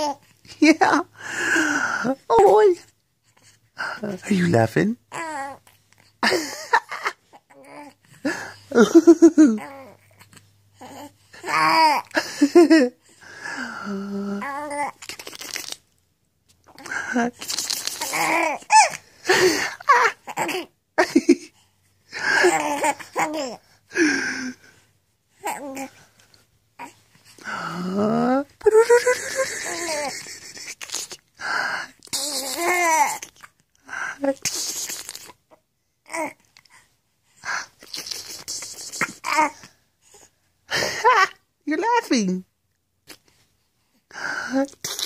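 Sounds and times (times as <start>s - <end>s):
infant laughing: 6.2s - 10.2s, 10.8s - 13.0s, 16.7s - 21.6s, 22.2s - 24.4s, 28.6s - 31.2s, 32.1s - 33.5s
baby squealing: 17.4s - 19.0s, 32.1s - 33.3s.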